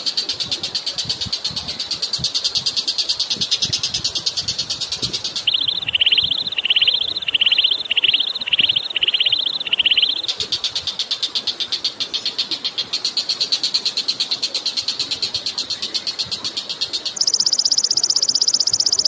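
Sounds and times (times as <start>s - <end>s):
bird buzzy trill: 5.2s - 10.4s, 17.1s - 19.0s
bird repeating whistled note: 5.4s - 10.3s, 17.2s - 19.0s.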